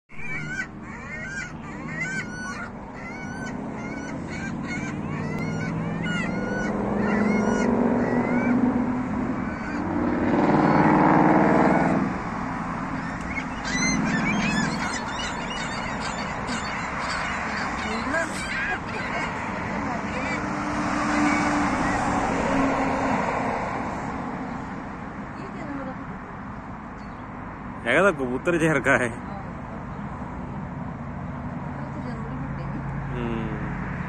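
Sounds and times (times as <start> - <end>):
road traffic hum: 0.0 - 34.0
gulls calling: 0.1 - 26.2
bus passing close: 0.1 - 34.0.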